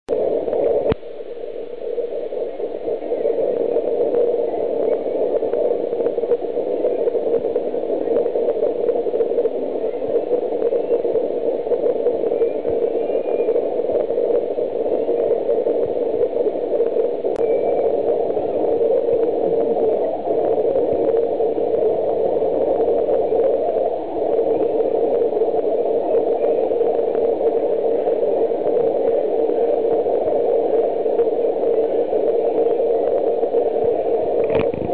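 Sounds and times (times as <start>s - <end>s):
constant low hiss: 0.1s - 34.9s.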